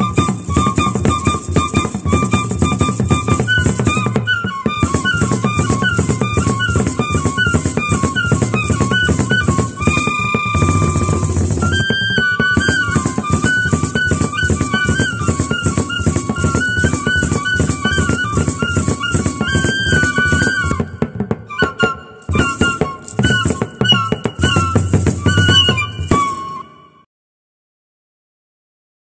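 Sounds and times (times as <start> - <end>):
drum beat: 10.5 - 12.0
high stepping lead melody: 10.6 - 11.9
fast shaker rattle: 10.6 - 12.0.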